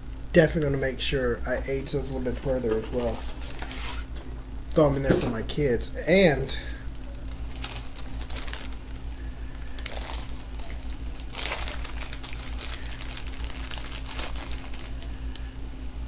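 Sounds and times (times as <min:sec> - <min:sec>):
low electrical hum: 0:00.0 - 0:16.0
packaging crinkling and rustling: 0:02.6 - 0:04.1, 0:06.9 - 0:15.5.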